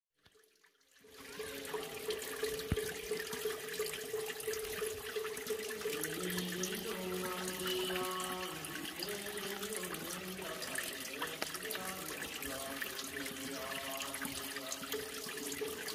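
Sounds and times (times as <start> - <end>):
water trickling into pool: 0.2 - 15.9
chanting: 5.6 - 15.9.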